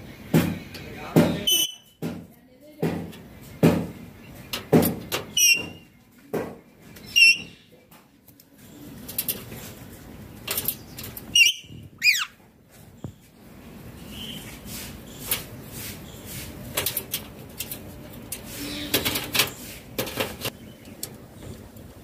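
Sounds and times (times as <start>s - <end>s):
knocks: 0.3s - 4.0s, 4.6s - 6.6s
rustling: 3.0s - 22.0s
parakeet calling: 7.0s - 7.7s, 11.3s - 12.4s.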